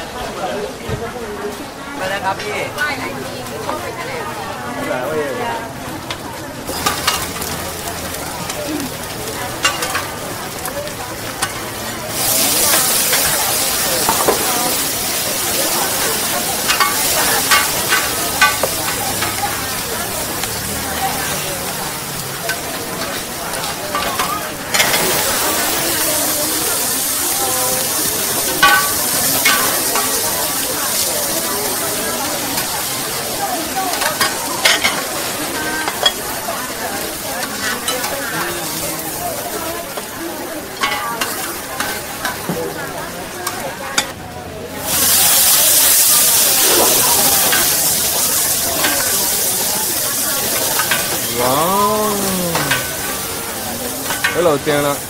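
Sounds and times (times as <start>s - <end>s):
food sizzling in hot oil: 5.5s - 55.0s
metal utensil clinking on pan: 6.1s - 7.6s, 9.6s - 10.2s, 15.9s - 19.6s, 22.5s - 25.2s, 28.4s - 30.6s, 33.9s - 35.1s, 40.7s - 42.4s, 50.5s - 51.3s, 53.9s - 54.6s.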